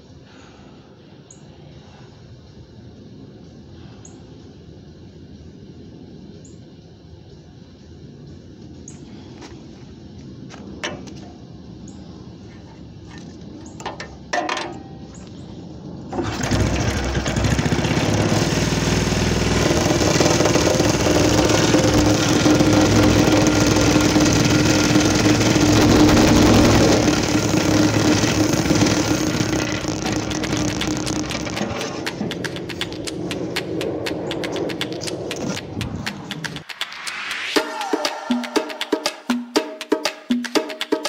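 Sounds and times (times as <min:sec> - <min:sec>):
go-kart engine idling: 0:16.1 - 0:33.8.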